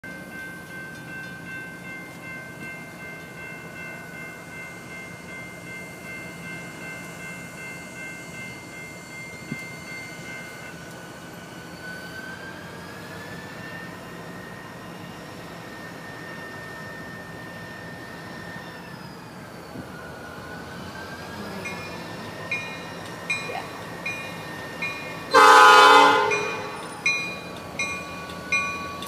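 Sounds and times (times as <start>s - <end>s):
diesel locomotive rumble: 0.0s - 29.0s
steady high horn tones: 25.2s - 27.1s.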